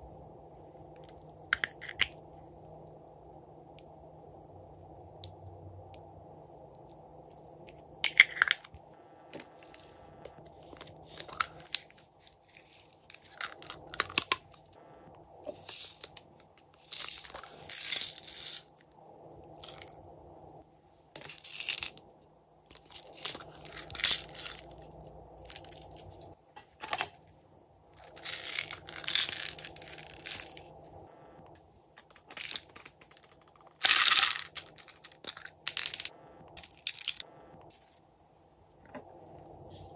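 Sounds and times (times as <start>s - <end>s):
plastic containers handled: 32.0s - 36.1s.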